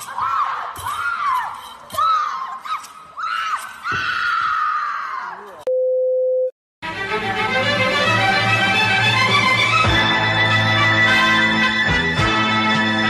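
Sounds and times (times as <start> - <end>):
people shouting and shrieking: 0.0 - 5.6
background music: 6.8 - 13.0.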